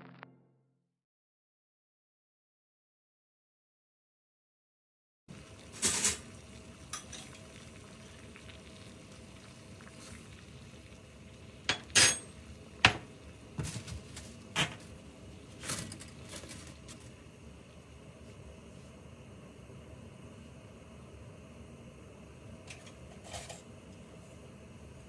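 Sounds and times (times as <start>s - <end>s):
water bubbling at a boil: 5.3s - 15.6s.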